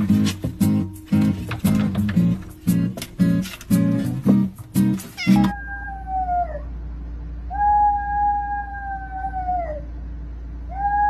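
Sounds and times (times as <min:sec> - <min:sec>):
small dog howling: 0:05.3 - 0:06.7, 0:07.5 - 0:09.9.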